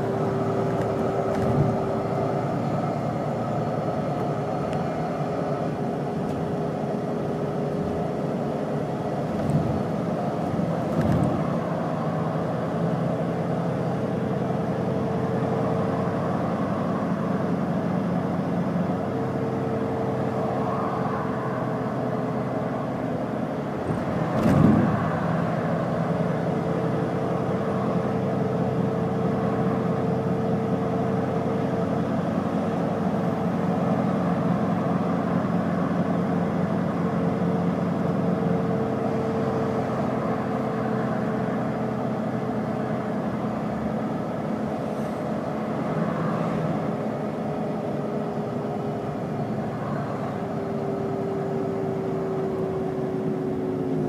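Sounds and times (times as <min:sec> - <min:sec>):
bus diesel engine whining: 0:00.0 - 0:54.0
loud thump: 0:23.9 - 0:25.0.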